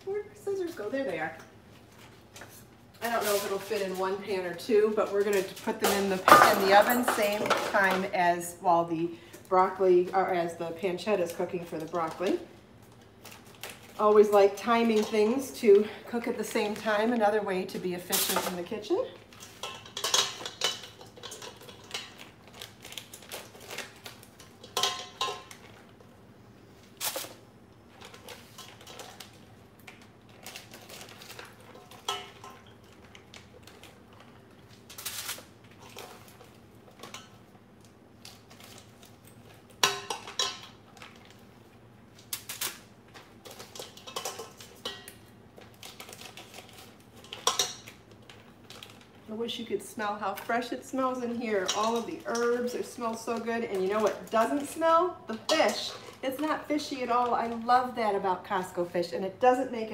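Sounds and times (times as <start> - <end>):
metal bowls knocking and clinking: 5.3 - 8.1, 19.4 - 22.2, 24.6 - 25.6, 43.6 - 45.2, 51.5 - 54.5
plastic packaging crinkling: 11.2 - 26.1, 26.8 - 58.2.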